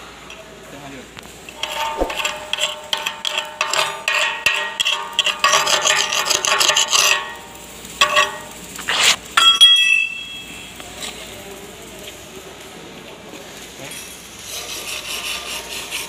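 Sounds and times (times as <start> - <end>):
metal scrape: 1.5 - 7.2, 8.0 - 9.2
steel plate ringing: 6.8 - 8.7, 9.4 - 10.8.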